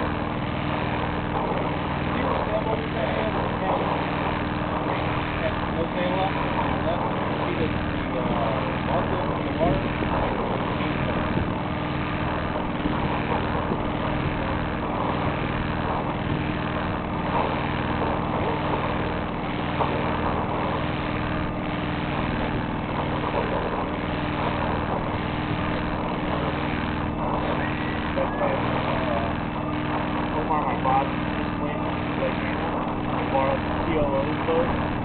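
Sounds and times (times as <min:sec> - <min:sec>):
boat engine droning: 0:00.0 - 0:35.0.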